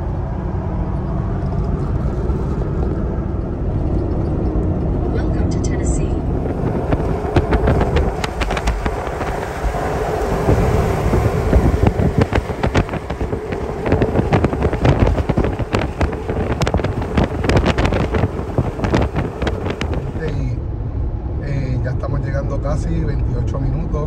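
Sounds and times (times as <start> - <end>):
wind buffeting microphone: 0.0 - 21.4
road and wind rumble: 0.0 - 24.0
sharp crackles and knocks: 6.3 - 20.4.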